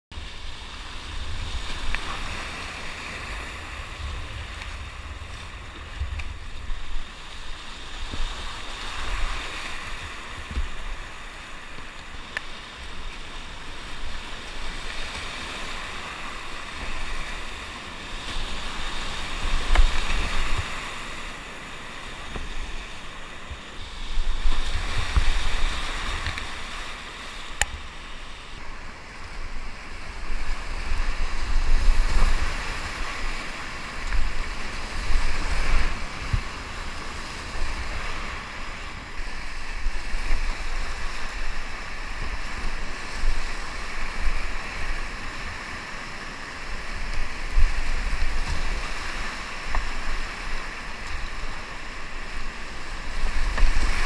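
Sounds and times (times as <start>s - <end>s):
whitewater rapids rushing: 0.2s - 54.0s
low rumble: 3.1s - 7.6s.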